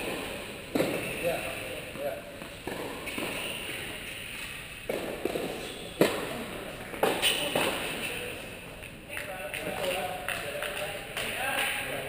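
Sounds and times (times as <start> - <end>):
tennis ball struck and bouncing: 0.0 - 1.2, 2.4 - 3.8, 4.9 - 8.0.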